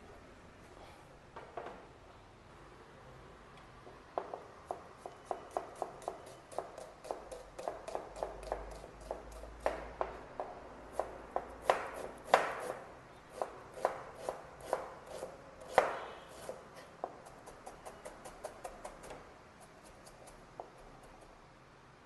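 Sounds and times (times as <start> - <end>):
knife chopping on cutting board: 4.3 - 12.8, 13.4 - 19.2.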